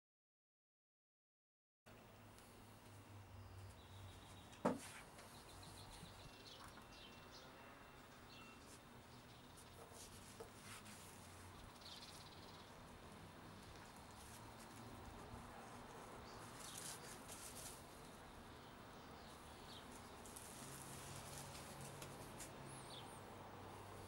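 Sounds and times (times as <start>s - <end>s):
faint bird chirps: 5.2s - 10.1s.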